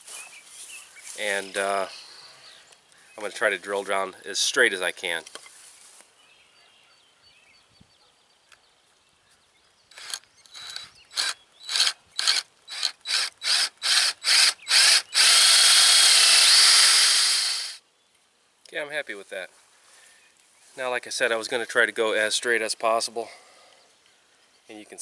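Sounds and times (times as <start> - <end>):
power drill boring into wood: 9.9 - 17.8.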